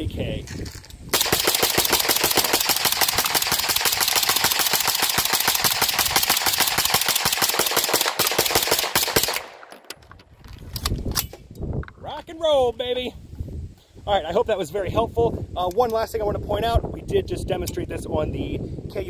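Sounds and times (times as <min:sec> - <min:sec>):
rapid gunfire: 0:01.1 - 0:09.7
scattered sharp sounds: 0:01.1 - 0:09.8.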